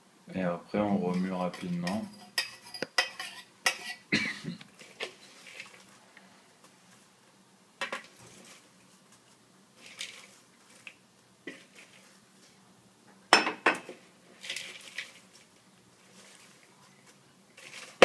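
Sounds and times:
metal spoon clinking on bowls: 0:01.4 - 0:04.0.

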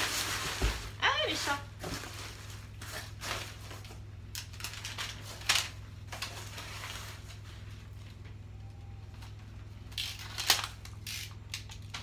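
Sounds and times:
paper and packing straw rustling: 0:00.0 - 0:08.4.

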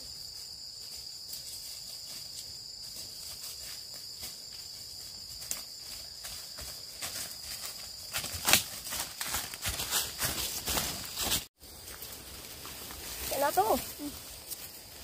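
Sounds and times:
footsteps crunching: 0:03.1 - 0:15.0.

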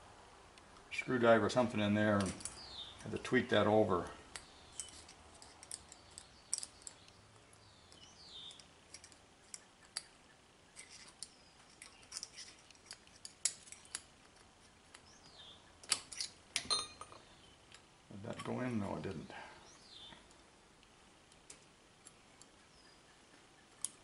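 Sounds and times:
metal parts clicking and scraping: 0:02.1 - 0:02.6, 0:04.3 - 0:07.1, 0:07.9 - 0:15.1, 0:15.8 - 0:18.6.

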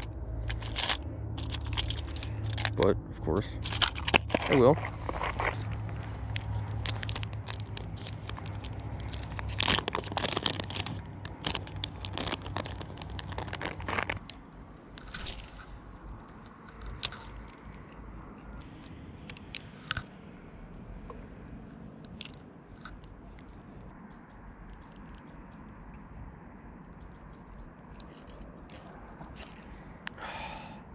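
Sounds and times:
plastic box clicks and crackles: 0:00.0 - 0:02.8, 0:03.6 - 0:14.4, 0:16.3 - 0:18.0.

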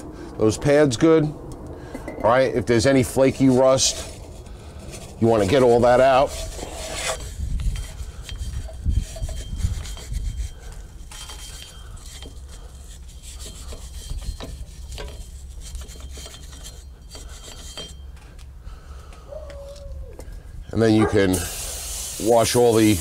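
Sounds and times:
wire brush scrubbing rust off metal: 0:02.6 - 0:18.2, 0:21.3 - 0:23.0.

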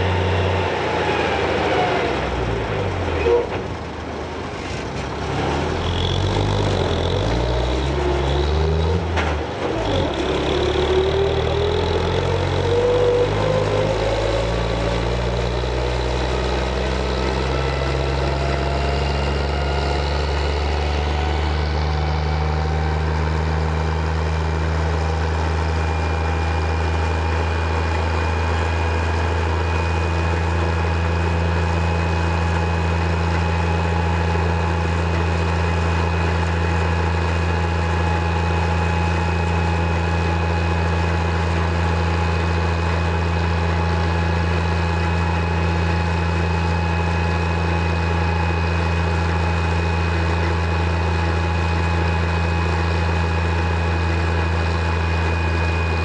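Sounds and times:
winch engine running: 0:05.0 - 0:56.0
cable winch whine: 0:05.7 - 0:56.0.

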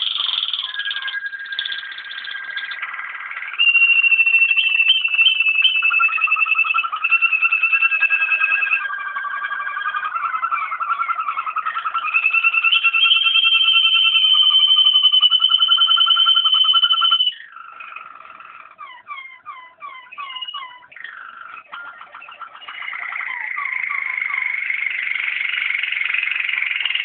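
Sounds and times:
canary trilling song: 0:00.0 - 0:27.0.

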